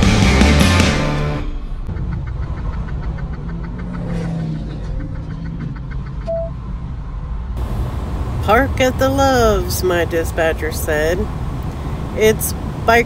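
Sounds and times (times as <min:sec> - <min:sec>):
truck engine rumble: 0:01.5 - 0:13.0
short beep: 0:06.3 - 0:06.6.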